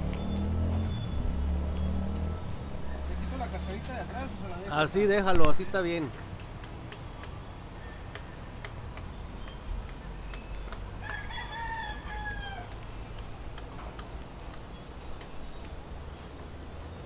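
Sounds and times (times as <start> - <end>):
rooster crowing: 11.0 - 12.8.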